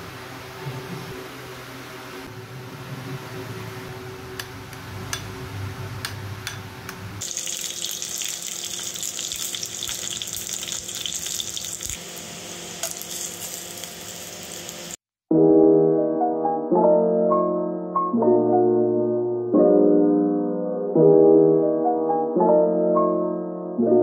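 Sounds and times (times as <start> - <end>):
metal tongs tapping: 6.0 - 7.0
chicken sizzling in oil: 7.2 - 15.0.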